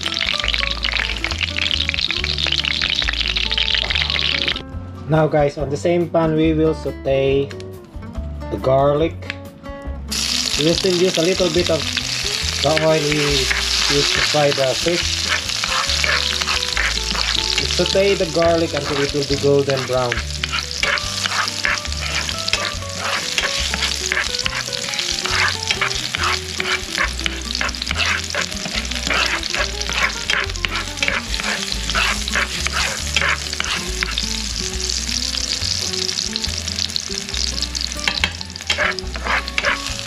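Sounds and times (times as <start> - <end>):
garlic sizzling in oil: 0.0 - 4.6, 10.1 - 40.0
spatula scraping and tapping pan: 10.7 - 34.4, 38.0 - 40.0.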